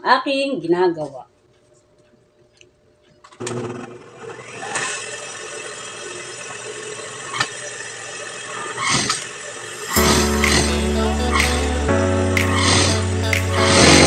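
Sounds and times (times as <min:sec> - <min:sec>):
sewing machine running: 0:03.4 - 0:11.7, 0:13.6 - 0:14.0
sharp clicks: 0:12.4 - 0:14.0.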